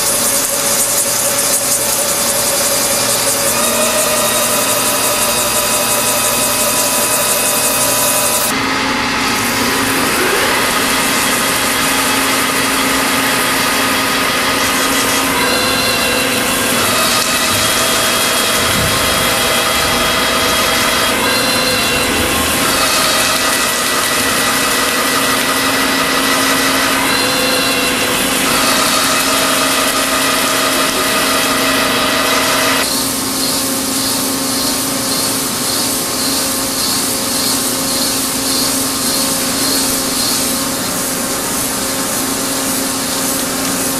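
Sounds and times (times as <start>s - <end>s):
metal cutting hiss: 0.0s - 8.5s, 32.8s - 43.9s
machine hum with whining tones: 0.0s - 43.9s.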